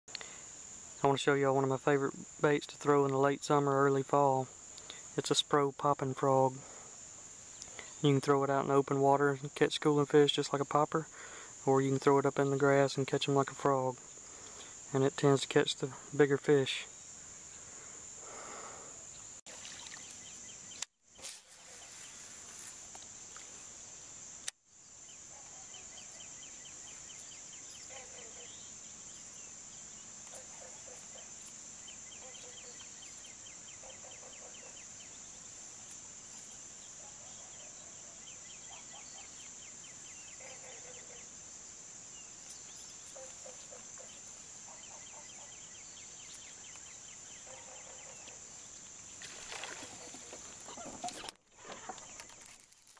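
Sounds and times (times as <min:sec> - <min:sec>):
cricket chirps: 0:00.1 - 0:52.9
high-pitched insect trill: 0:00.1 - 0:52.9
lower pulsed insect calls: 0:00.1 - 0:52.9.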